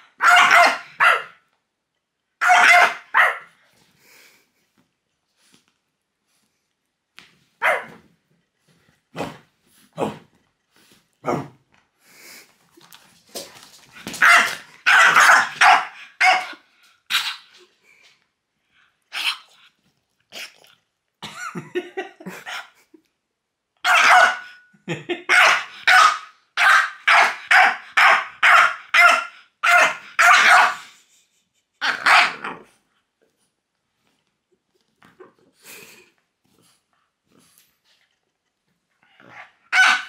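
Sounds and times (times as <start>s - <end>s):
dog barking: 0.0s - 1.4s, 2.4s - 3.5s, 7.6s - 8.0s, 14.2s - 17.4s, 23.8s - 24.6s, 25.3s - 30.9s, 31.8s - 32.6s, 39.7s - 40.0s.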